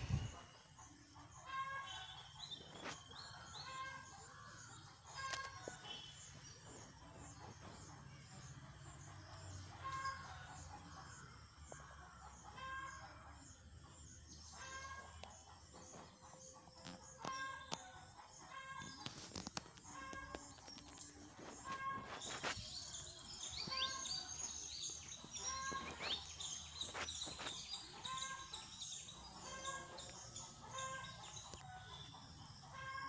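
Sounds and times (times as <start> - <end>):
faint chicken calls: 29.4 - 33.0.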